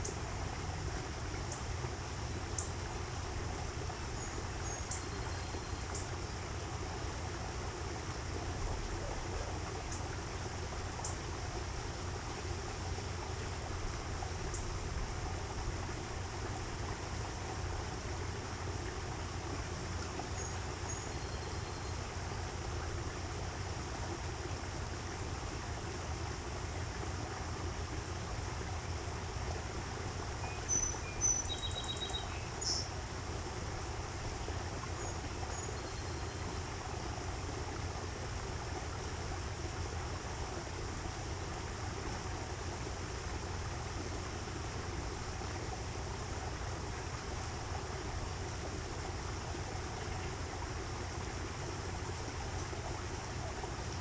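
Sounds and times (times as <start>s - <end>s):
stream rushing: 22.1s - 54.0s.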